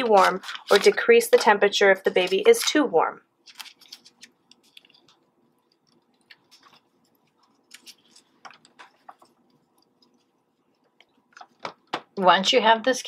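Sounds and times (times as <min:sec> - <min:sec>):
faint steady hum: 0:00.0 - 0:13.0
gloved hands clicking and rustling: 0:03.4 - 0:12.1.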